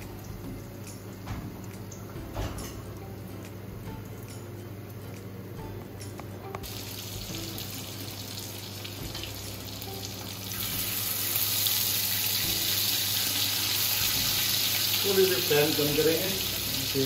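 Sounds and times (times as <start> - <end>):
meat sizzling in hot oil: 6.6 - 17.0.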